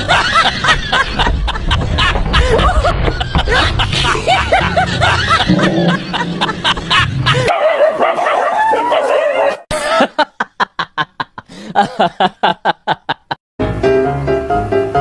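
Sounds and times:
person laughing: 0.0 - 7.5, 9.7 - 13.4.

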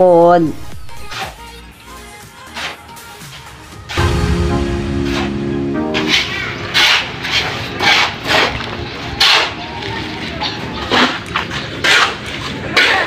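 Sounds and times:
shovels scraping sand and gravel: 6.0 - 9.6, 10.8 - 13.0.

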